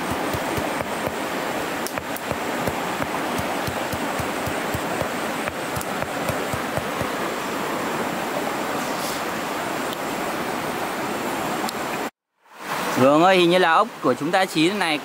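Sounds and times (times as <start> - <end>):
rushing stream water: 0.0 - 15.0
stone pounding on rock: 1.9 - 7.2.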